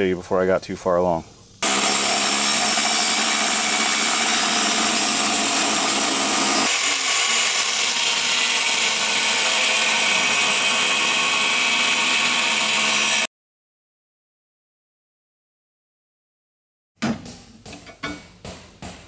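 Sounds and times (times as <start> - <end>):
angle grinder cutting steel: 1.6 - 13.3.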